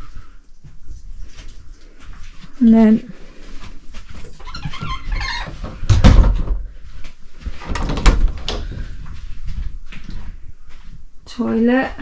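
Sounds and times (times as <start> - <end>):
door being opened: 4.2 - 6.7, 7.6 - 8.8.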